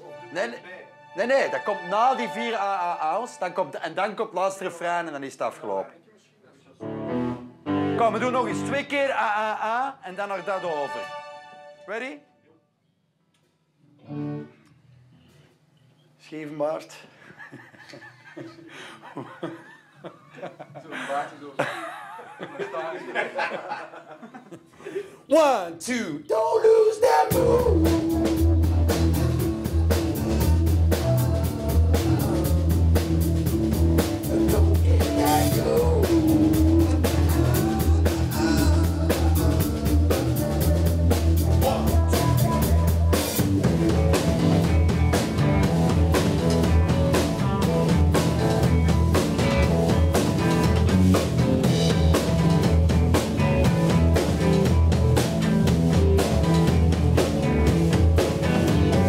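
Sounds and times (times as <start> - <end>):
rock band playing: 6.8 - 8.9, 14.0 - 14.5, 27.3 - 59.0
person singing: 26.3 - 33.1, 34.2 - 44.2
driving drum beat: 27.3 - 59.0.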